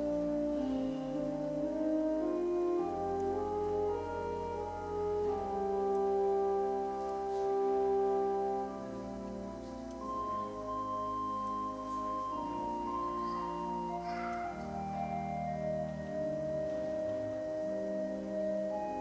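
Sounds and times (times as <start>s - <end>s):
slow mellow instrumental music: 0.0s - 19.0s.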